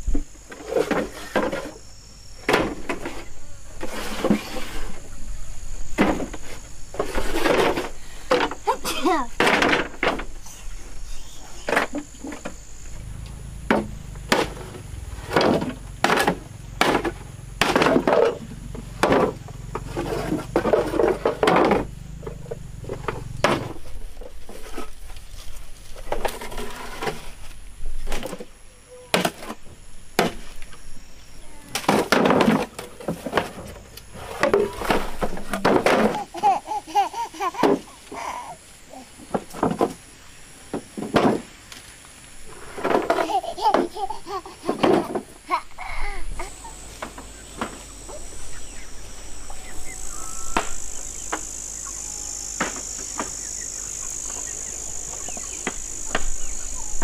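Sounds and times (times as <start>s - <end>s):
sharp knocks: 13.7s - 19.4s.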